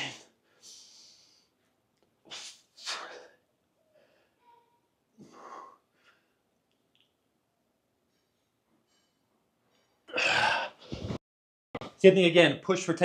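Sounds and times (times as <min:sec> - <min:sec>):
man breathing hard: 0:00.4 - 0:01.6, 0:05.2 - 0:06.4
man grunting exhale: 0:10.1 - 0:10.8.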